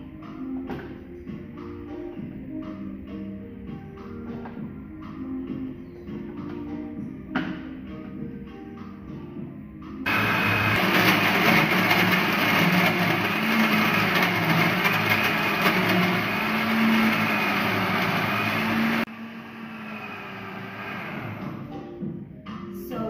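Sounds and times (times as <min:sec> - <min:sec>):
blender running: 0:10.1 - 0:21.7.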